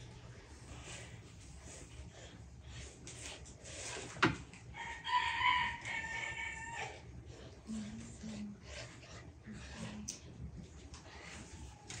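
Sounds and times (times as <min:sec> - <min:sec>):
rooster crowing: 0:04.7 - 0:07.0.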